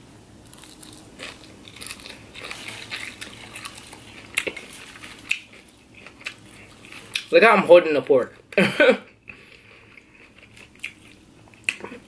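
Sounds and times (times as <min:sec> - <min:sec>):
chewing crunchy salad: 0:00.4 - 0:07.3, 0:09.1 - 0:12.0.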